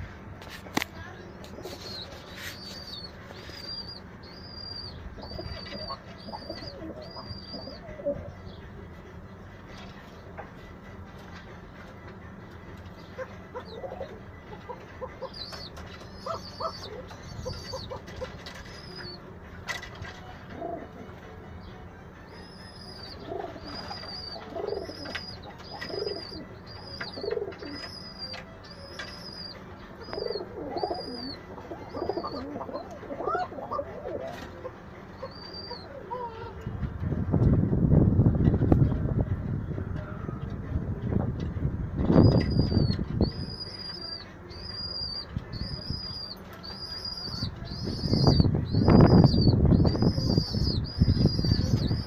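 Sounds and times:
pigeons cooing: 1.6s - 8.4s, 13.0s - 19.8s, 20.4s - 21.1s, 22.3s - 36.6s, 42.2s - 52.0s
thin high chirp: 22.4s - 32.4s.

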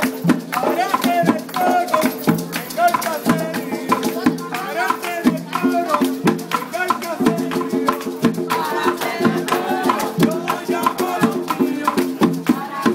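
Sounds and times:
latin dance music: 0.0s - 12.9s
shaker beat: 0.0s - 12.9s
person singing: 0.6s - 12.9s.

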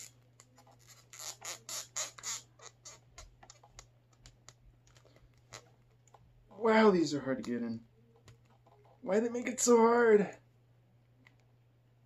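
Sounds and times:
plastic toy creaking and squeaking: 0.0s - 6.2s.

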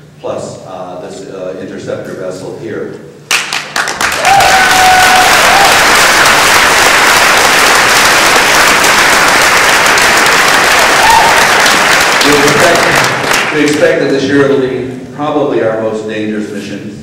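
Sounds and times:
audience applauding: 3.3s - 14.0s.

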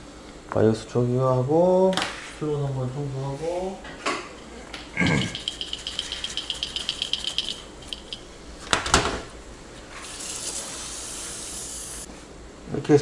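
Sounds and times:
compressed air hissing: 10.0s - 12.1s.

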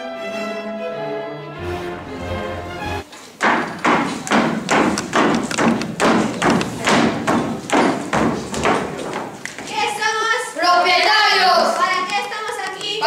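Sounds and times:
orchestral music: 0.0s - 3.1s
marching footsteps on wooden stage: 3.1s - 10.1s.

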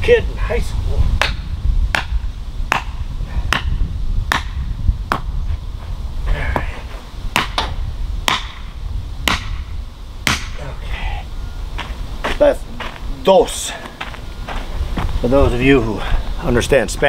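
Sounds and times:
hammer driving a stake: 7.4s - 8.6s, 9.3s - 9.6s, 10.2s - 10.6s.

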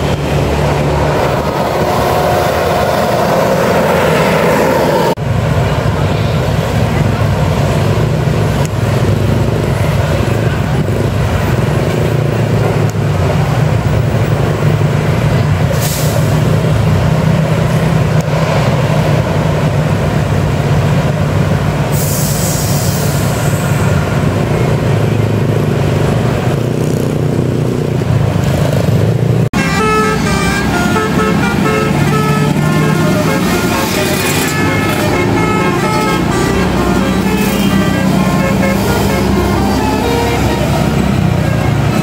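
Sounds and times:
bus engines and traffic rumbling: 0.0s - 42.0s
air brake hiss: 15.7s - 16.5s, 21.9s - 23.9s
musical air horn tune: 29.6s - 42.0s.

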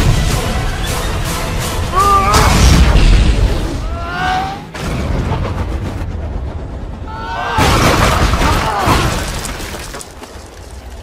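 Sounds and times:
dramatic action film music: 0.0s - 8.8s.

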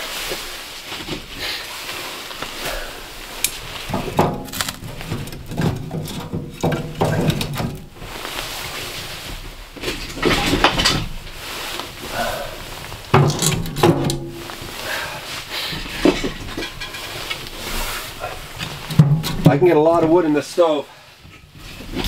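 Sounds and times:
firewood knocking and clattering: 3.4s - 11.6s, 12.8s - 14.9s, 15.6s - 20.3s.

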